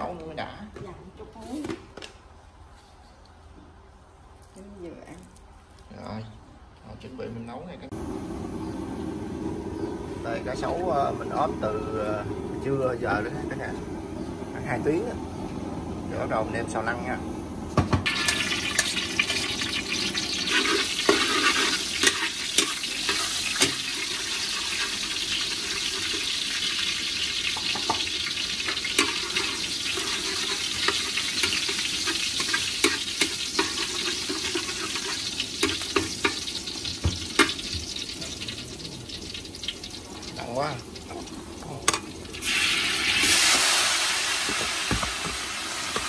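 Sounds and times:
garlic sizzling in hot oil: 7.9 - 46.0
metal spatula scraping pan: 18.1 - 26.4, 28.6 - 36.5.

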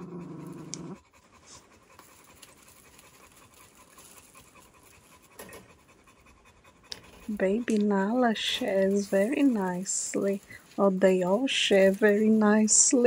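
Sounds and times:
puppy growling: 0.0 - 7.4
faint clicks and rustles: 0.4 - 13.0.

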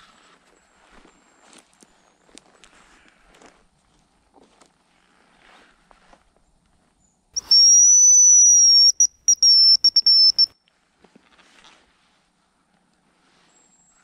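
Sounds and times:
high whistle decoy call: 7.4 - 10.5.

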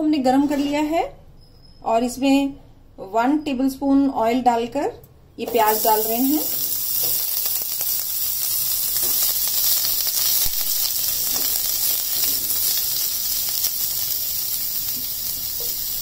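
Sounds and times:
onions sizzling in hot oil: 5.5 - 16.0.

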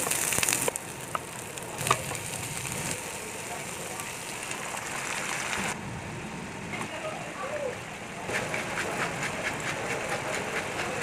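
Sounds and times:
cabbage hissing in frying pan: 0.0 - 5.7.

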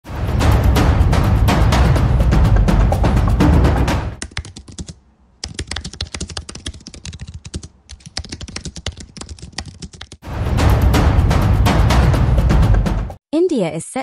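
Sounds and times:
music with deep drum: 0.1 - 4.2, 10.4 - 13.2
typing on computer keyboard: 4.2 - 10.2.

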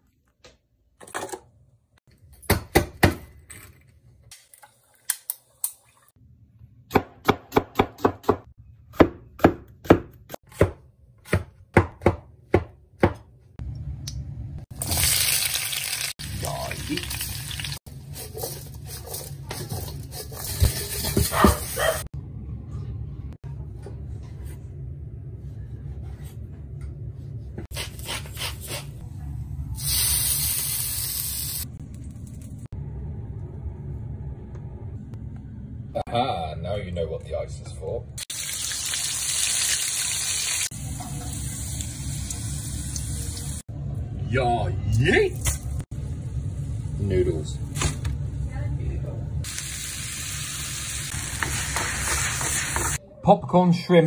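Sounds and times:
knife chopping on wooden board: 6.9 - 13.3
wok sizzling: 14.7 - 22.0, 29.8 - 31.7, 38.2 - 43.7, 49.4 - 53.0.

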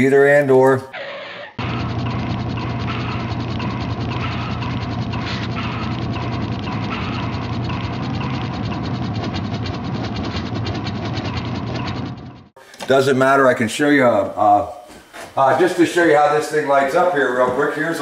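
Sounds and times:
machine clicking rapidly: 1.6 - 12.5.

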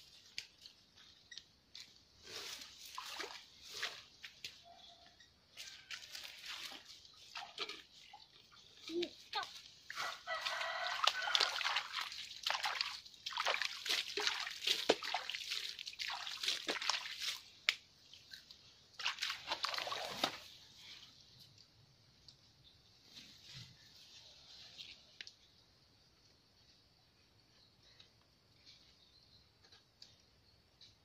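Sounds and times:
rooster crowing: 9.9 - 11.8.

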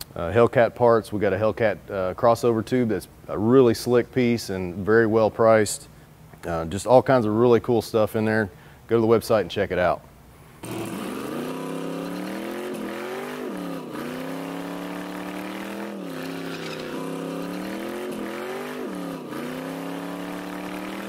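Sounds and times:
car engine revving high: 10.6 - 21.0
tire spinning: 10.6 - 21.0.

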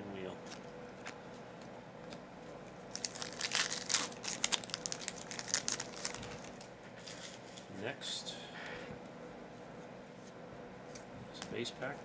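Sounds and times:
wrapper tearing and crinkling: 2.9 - 7.4.

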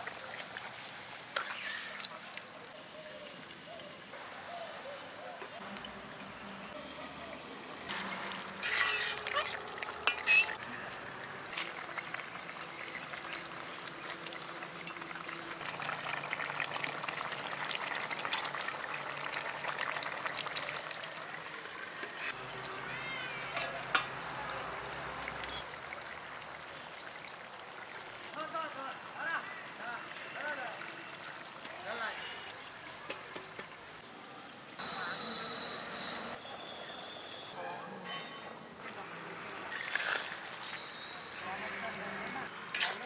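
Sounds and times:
curry bubbling and sizzling: 0.0 - 3.5, 5.6 - 32.8, 39.6 - 41.4
spatula stirring in metal pan: 7.9 - 10.6
thin steady high tone: 34.8 - 38.6.

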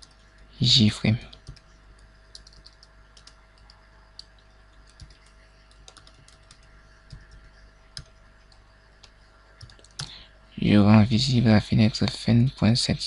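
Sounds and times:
keyboard typing: 0.0 - 0.4, 1.2 - 10.2.

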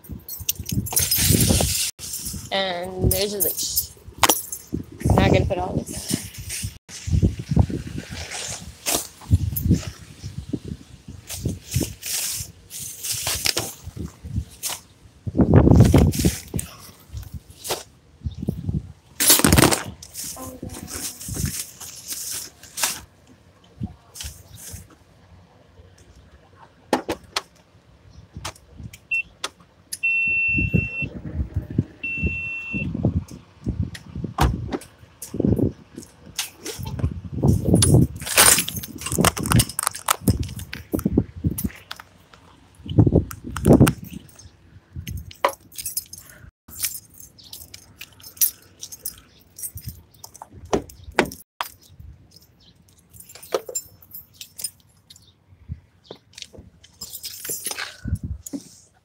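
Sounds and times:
light metallic jingling: 0.0 - 4.8, 45.1 - 55.3, 56.4 - 58.2
electronic beeper beeps: 30.0 - 31.1, 32.0 - 32.9.

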